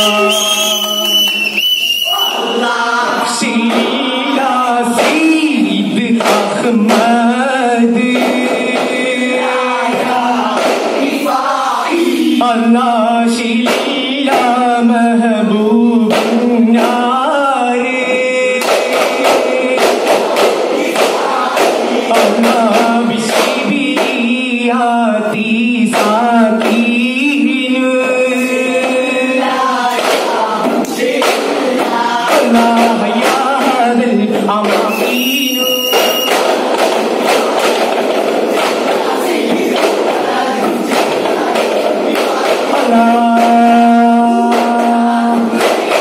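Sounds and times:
lead singer: 0.0s - 46.0s
young men singing in unison: 0.0s - 46.0s
frame drum strikes: 2.5s - 11.8s, 13.6s - 14.9s, 16.0s - 17.3s, 18.5s - 24.4s, 35.9s - 46.0s.

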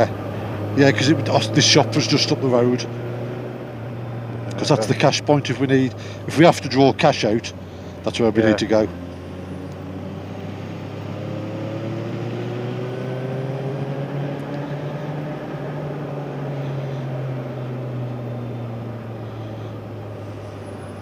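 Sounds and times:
motorcycle engine droning: 0.0s - 21.0s
road noise: 0.0s - 21.0s.

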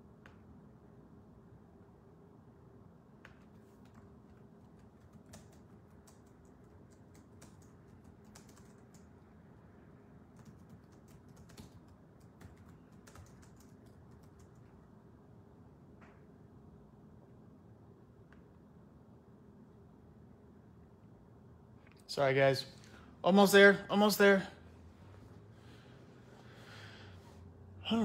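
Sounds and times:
low room hum: 0.0s - 28.0s
typing on keyboard: 3.2s - 9.2s, 10.3s - 14.8s.

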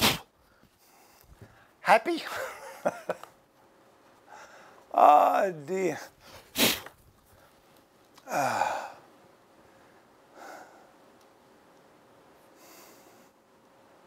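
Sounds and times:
man sighing: 8.2s - 9.1s.

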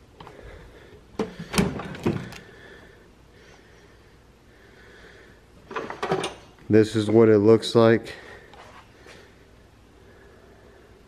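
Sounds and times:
tools clattering in drawer: 5.7s - 6.5s.

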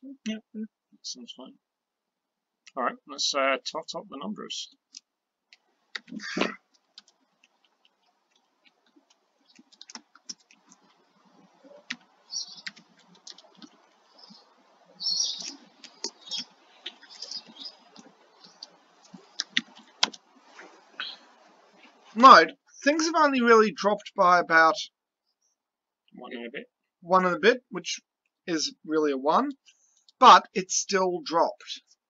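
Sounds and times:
keyboard typing and clicking: 7.0s - 10.9s, 11.6s - 14.3s, 15.4s - 20.2s
soft hisses: 8.9s - 23.0s.

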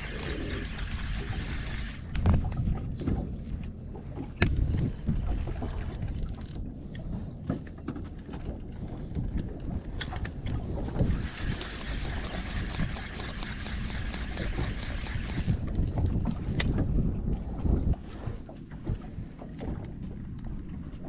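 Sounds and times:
fishing reel clicks: 0.0s - 0.7s, 5.2s - 5.5s, 6.2s - 6.6s, 9.9s - 10.3s
wind rumble on microphone: 0.0s - 21.0s.

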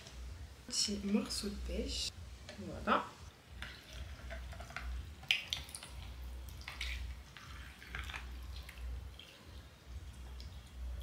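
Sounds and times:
liquid trickling into glass: 5.5s - 9.5s.

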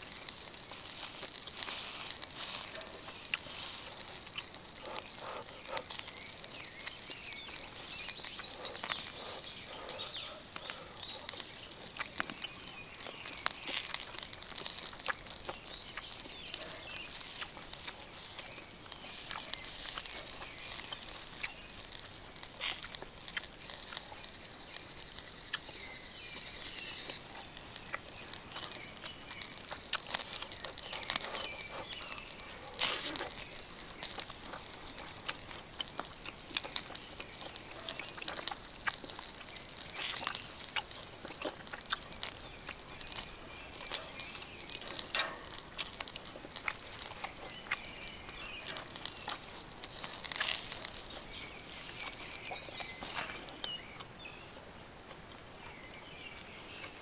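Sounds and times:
sharp clicks and pops: 0.0s - 54.2s
meat sizzling on a grill: 0.0s - 57.0s
faint bird chirps: 4.7s - 14.4s, 23.3s - 34.2s, 46.9s - 49.5s, 50.3s - 54.5s.

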